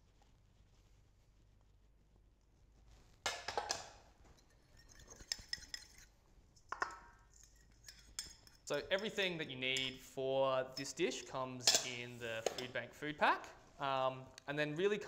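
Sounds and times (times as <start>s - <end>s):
bowls and fork clinking: 4.3s - 10.1s, 10.7s - 12.8s.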